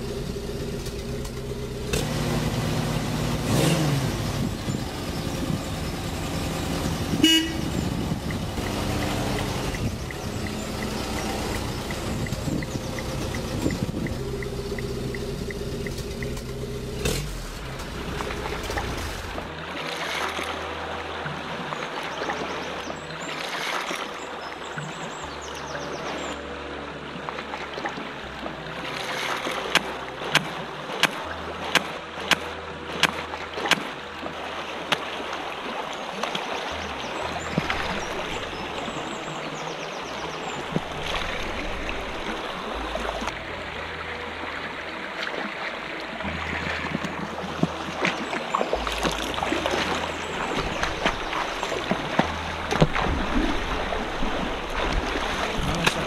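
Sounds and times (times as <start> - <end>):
low sustained music notes: 0.0 - 56.0
river water rushing over rocks: 0.0 - 56.0
sharp clicks: 8.2 - 19.4.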